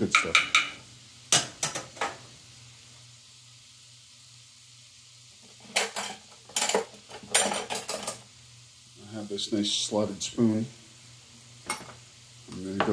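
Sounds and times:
onions sizzling in a skillet: 0.0s - 12.9s
kitchen utensils clattering: 5.6s - 8.2s.

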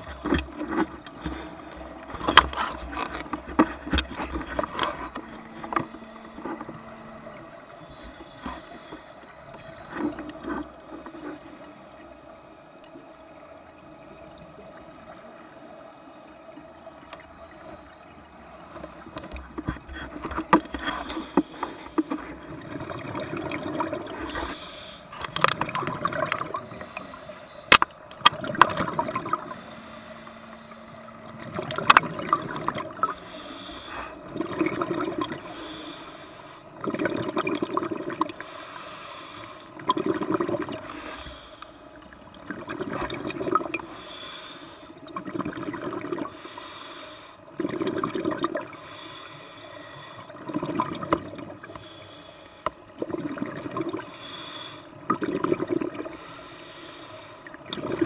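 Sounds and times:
diver inhaling through regulator: 0.0s - 9.4s, 10.8s - 13.5s, 18.2s - 22.5s, 23.8s - 25.3s, 26.5s - 28.0s, 29.1s - 34.3s, 35.2s - 36.8s, 38.3s - 39.8s, 40.7s - 42.2s, 43.7s - 45.2s, 46.2s - 47.6s, 48.6s - 50.5s, 51.5s - 52.9s, 53.9s - 55.0s, 56.0s - 57.6s
bubbling exhale underwater: 19.4s - 36.0s, 36.8s - 38.5s, 39.8s - 41.3s, 42.4s - 44.0s, 45.1s - 46.4s, 47.5s - 48.8s, 50.3s - 51.7s, 52.9s - 54.3s, 55.0s - 56.3s, 57.4s - 58.0s.

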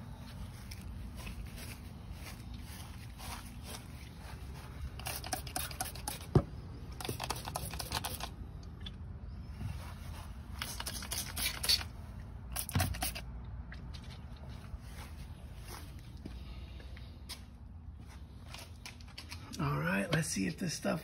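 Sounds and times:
spray bottle spritzing: 5.0s - 6.3s, 7.0s - 8.3s, 10.6s - 13.3s.

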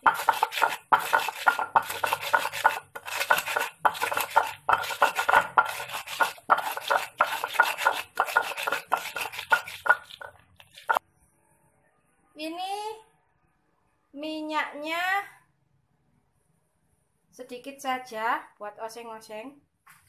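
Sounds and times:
stone pestle grinding on mortar: 0.0s - 11.0s.

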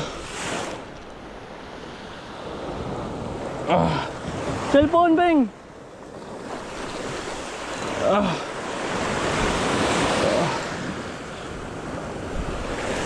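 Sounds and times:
surf washing over rocks: 0.0s - 13.0s
wind buffeting microphone: 8.8s - 13.0s.

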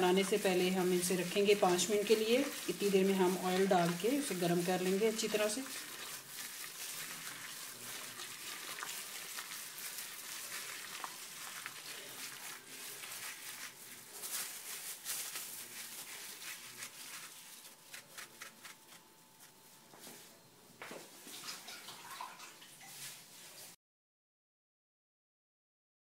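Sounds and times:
hand squelching wet batter: 0.0s - 19.8s.

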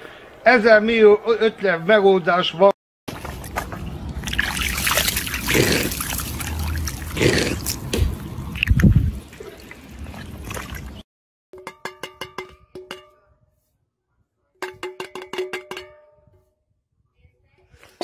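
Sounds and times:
water splashing around boot: 3.1s - 11.0s
metal tin knocking on mug: 11.6s - 13.2s, 14.6s - 16.1s.

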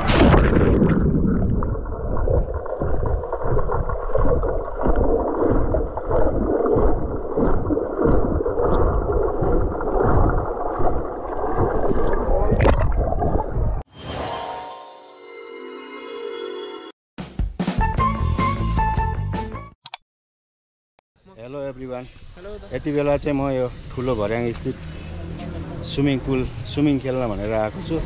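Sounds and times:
muffled underwater water rushing: 0.0s - 13.8s
water splash: 0.0s - 14.3s.

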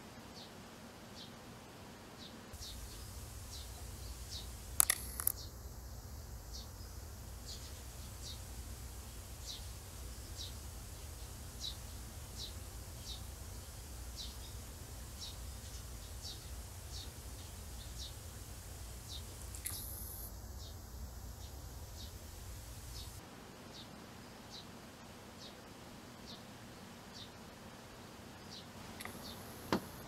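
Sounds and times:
sparrow chirping: 2.6s - 5.6s, 6.4s - 18.2s, 19.0s - 23.2s.

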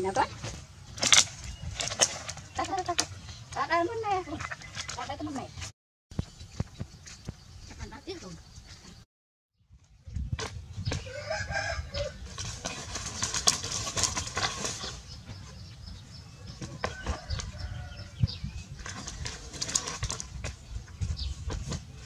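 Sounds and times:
dry palm fronds crackling: 0.0s - 5.7s, 11.3s - 15.0s, 18.8s - 20.5s
chickens calling: 10.8s - 21.7s.

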